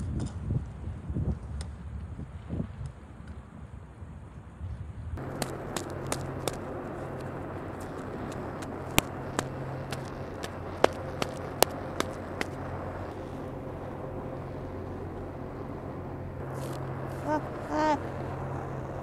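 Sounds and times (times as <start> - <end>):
low engine hum: 0.0 - 19.0
low rumble: 4.1 - 19.0.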